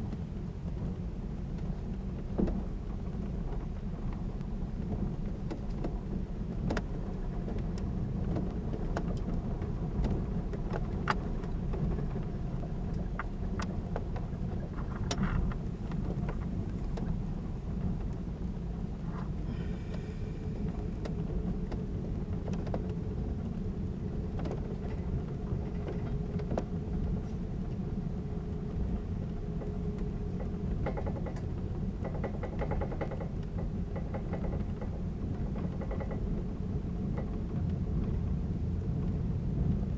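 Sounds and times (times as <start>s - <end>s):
faint steady hum: 0.0s - 39.9s
train wheels rumbling on rail: 0.0s - 39.9s
sharp clicks and knocks: 30.4s - 36.4s.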